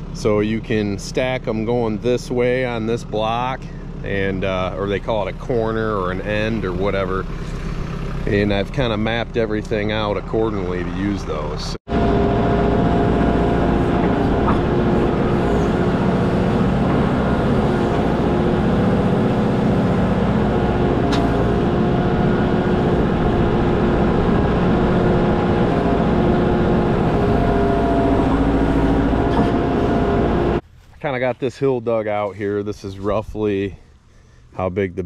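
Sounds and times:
diesel engine running: 0.0s - 34.9s
backhoe digging into dirt: 12.1s - 30.6s.

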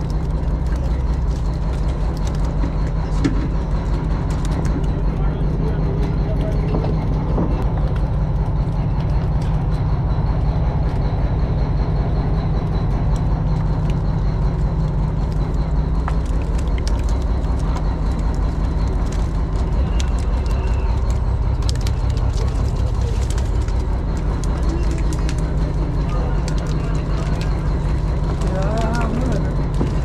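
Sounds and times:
hose water splashing on baskets: 0.0s - 5.0s, 13.6s - 30.0s
boat engine droning: 0.0s - 30.0s.

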